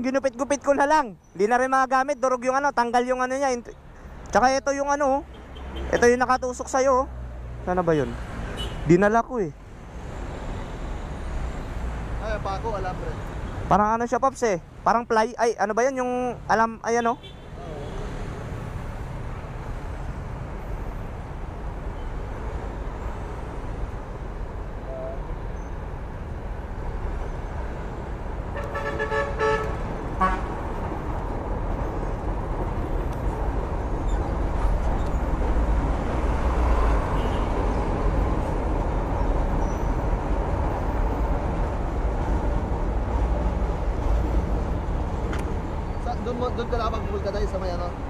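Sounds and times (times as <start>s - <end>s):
road traffic rumble: 0.0s - 48.0s
vehicle horn beeping: 8.6s - 8.9s, 28.6s - 30.5s, 37.0s - 37.6s.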